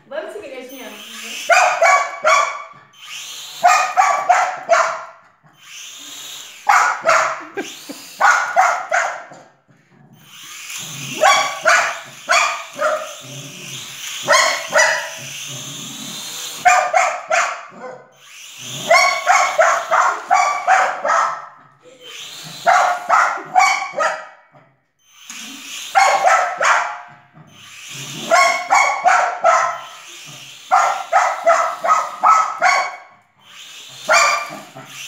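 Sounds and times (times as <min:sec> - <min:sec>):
dog barking: 0:01.4 - 0:02.7, 0:03.6 - 0:05.2, 0:06.7 - 0:07.6, 0:08.2 - 0:09.4, 0:11.1 - 0:13.2, 0:14.2 - 0:15.2, 0:16.6 - 0:18.2, 0:18.8 - 0:21.6, 0:22.6 - 0:24.4, 0:25.9 - 0:27.1, 0:28.2 - 0:29.9, 0:30.7 - 0:33.2, 0:34.1 - 0:34.7.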